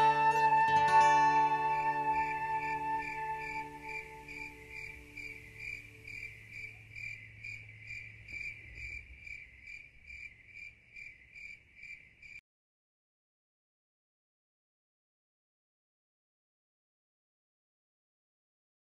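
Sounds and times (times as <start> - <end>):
song held notes: 0.0 - 6.0
crickets chirping: 0.0 - 12.4.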